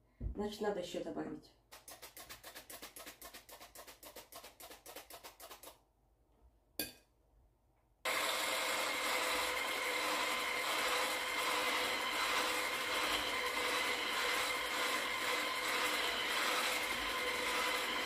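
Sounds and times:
electric hand whisk running: 0:08.1 - 0:18.0.

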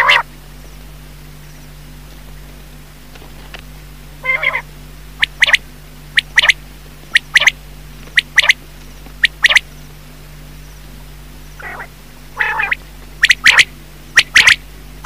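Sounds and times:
quail calling: 0:00.0 - 0:00.3, 0:04.2 - 0:08.6, 0:09.2 - 0:09.7, 0:11.6 - 0:14.6.

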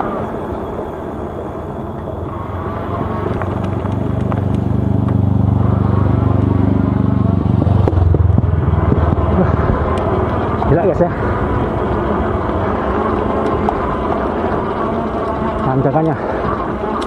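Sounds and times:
motorcycle engine passing by: 0:02.4 - 0:15.4.

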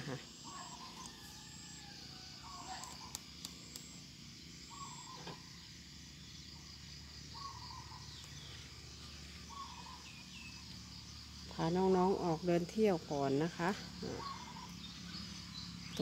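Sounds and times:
crickets chirring: 0:00.0 - 0:16.0
bird wavering call: 0:09.5 - 0:10.5, 0:14.1 - 0:14.8.

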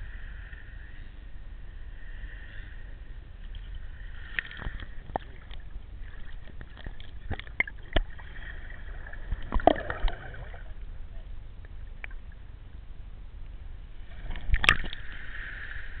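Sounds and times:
underwater hiss and rumble: 0:00.0 - 0:16.0
underwater clicks and knocks: 0:04.4 - 0:08.1, 0:09.4 - 0:10.3, 0:14.3 - 0:15.0.

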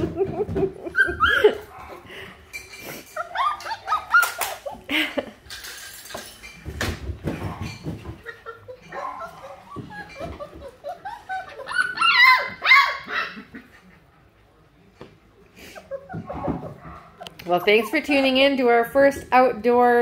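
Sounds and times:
puppies whining and yipping: 0:00.8 - 0:02.0, 0:02.9 - 0:04.9, 0:07.6 - 0:13.5, 0:15.6 - 0:18.6
sharp knocks and thumps: 0:06.6 - 0:08.4.

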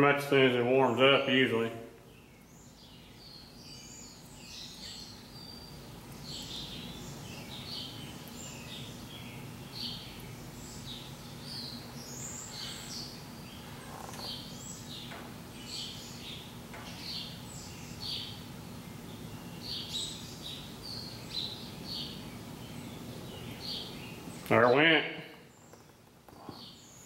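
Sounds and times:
birds chirping: 0:00.0 - 0:27.0
faint steady hum: 0:00.0 - 0:27.0.

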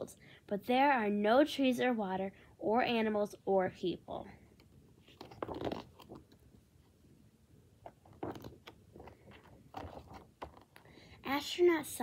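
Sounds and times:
paper page rustling: 0:05.0 - 0:06.4, 0:07.8 - 0:10.9.

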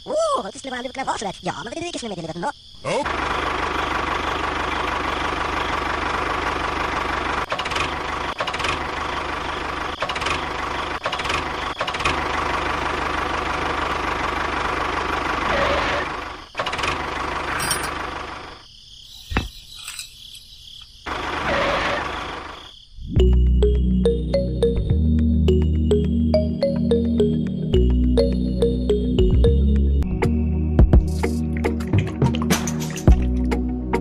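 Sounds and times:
toy engine droning: 0:15.1 - 0:17.8.

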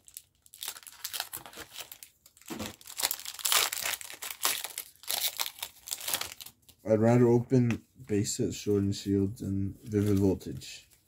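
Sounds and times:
foil wrapper crinkling: 0:00.0 - 0:06.8.

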